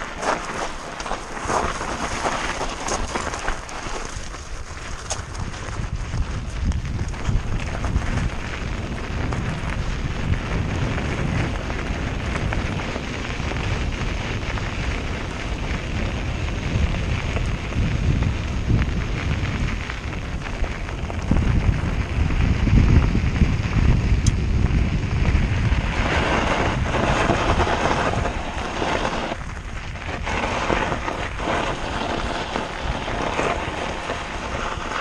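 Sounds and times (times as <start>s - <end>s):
tyres crackling on loose stones: 0.0s - 35.0s
wind buffeting microphone: 0.0s - 35.0s.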